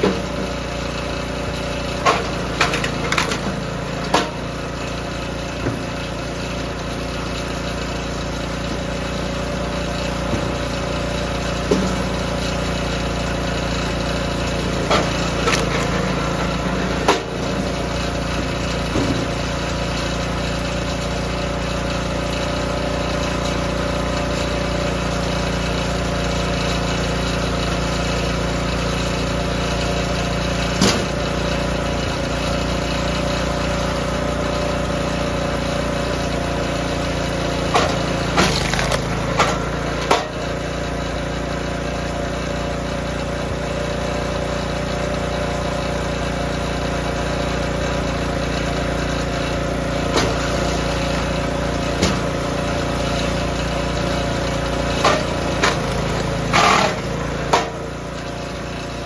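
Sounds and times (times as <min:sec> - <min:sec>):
small gas engine running: 0:00.0 - 0:59.0
wooden knocks of logs: 0:02.0 - 0:04.4, 0:37.7 - 0:40.4.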